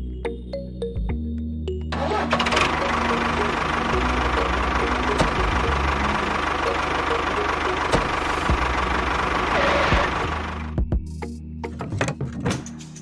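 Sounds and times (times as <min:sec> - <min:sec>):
diesel tractor engine idling: 0:02.0 - 0:10.8.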